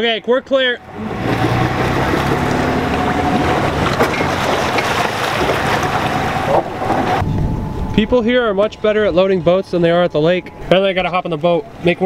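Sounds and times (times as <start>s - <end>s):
water churning around hull: 0.0s - 12.0s
wind on microphone: 5.4s - 11.8s.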